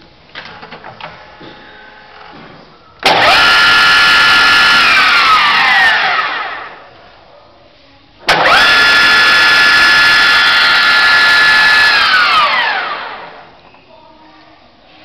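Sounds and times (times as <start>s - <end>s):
drilling machine motor whine: 3.0s - 6.8s, 8.3s - 13.5s.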